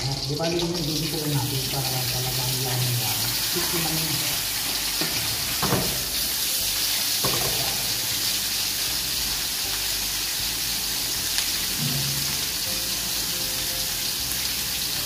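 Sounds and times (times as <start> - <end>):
meat sizzling in a frying pan: 0.0 - 15.0
knocks in a pan: 5.0 - 6.1, 7.2 - 7.8, 11.8 - 12.4.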